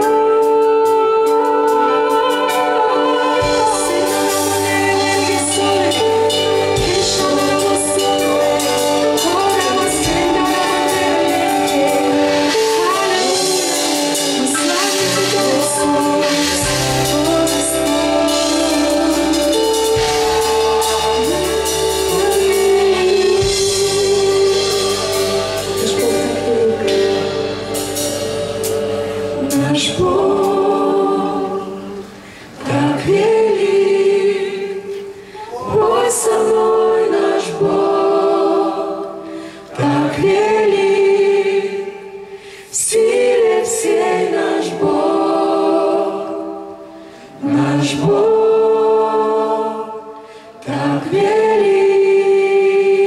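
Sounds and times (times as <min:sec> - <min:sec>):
sustained keyboard accompaniment: 0:00.0 - 0:35.2
backing singers: 0:00.0 - 0:53.0
woman singing worship song: 0:00.0 - 0:53.0.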